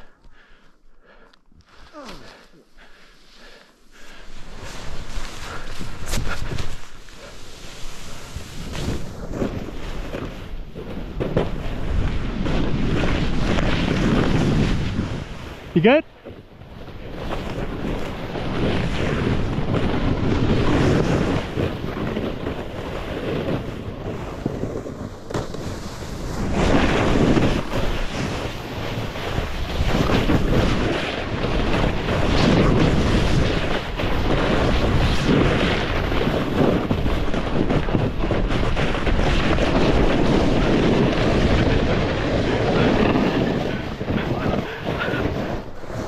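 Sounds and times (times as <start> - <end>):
snowboard scraping snow: 1.7 - 46.0
wind buffeting microphone: 16.3 - 46.0.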